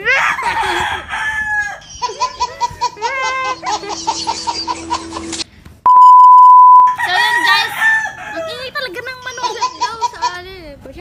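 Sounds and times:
laughter: 2.0 - 5.4.

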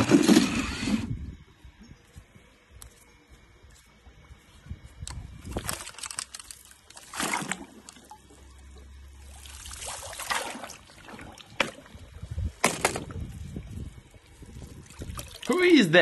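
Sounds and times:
pool water splashing: 7.0 - 12.1, 14.2 - 16.0.

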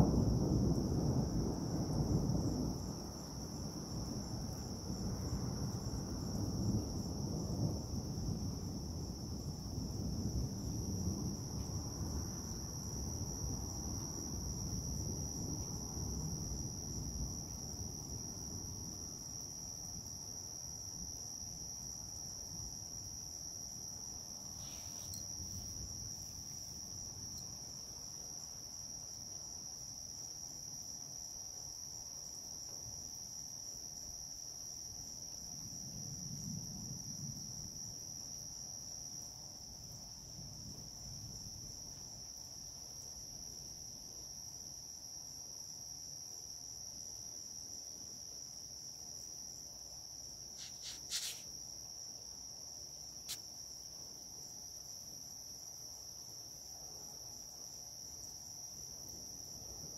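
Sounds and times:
low thunder rumble: 0.0 - 19.1
night insects trilling: 0.0 - 59.9.

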